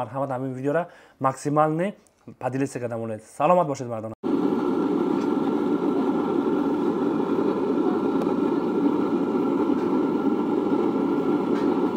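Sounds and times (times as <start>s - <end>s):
burner blower fan: 4.2s - 11.9s.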